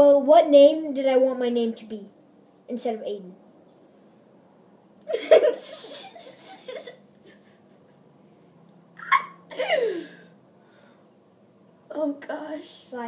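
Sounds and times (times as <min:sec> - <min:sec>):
boy laughing: 0:05.1 - 0:08.1, 0:09.0 - 0:10.2.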